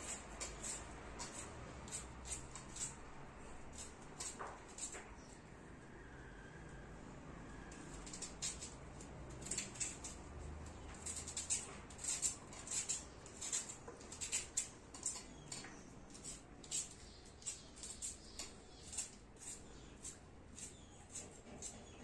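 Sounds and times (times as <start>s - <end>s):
knife crunching through onion: 0.0s - 3.0s, 10.9s - 15.4s.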